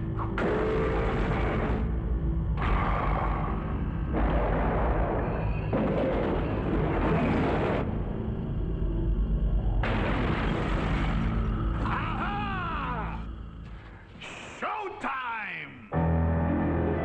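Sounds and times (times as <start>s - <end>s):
deep rumbling and booming: 0.2s - 12.3s.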